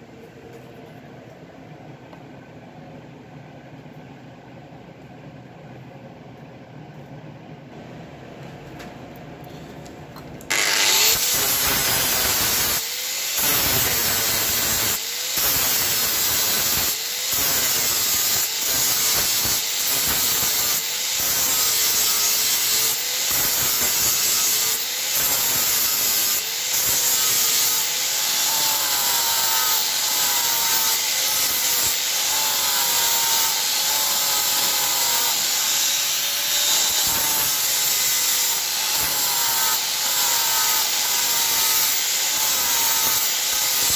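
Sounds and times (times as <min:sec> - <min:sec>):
angle grinder grinding steel: 0:10.5 - 0:43.9.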